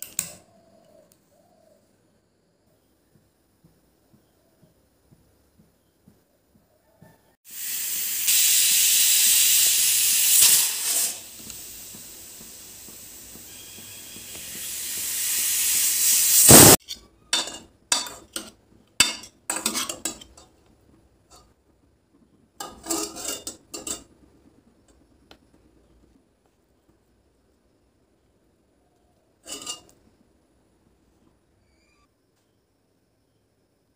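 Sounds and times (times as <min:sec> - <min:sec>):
pressure cooker hissing steam: 0:07.5 - 0:16.8.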